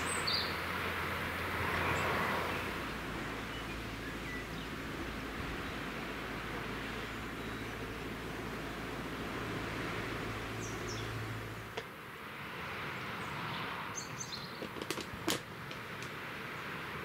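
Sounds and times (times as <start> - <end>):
small birds chirping: 0.0 - 11.9, 12.8 - 15.2
low hum: 0.0 - 12.2
sea surf rushing: 0.0 - 13.9.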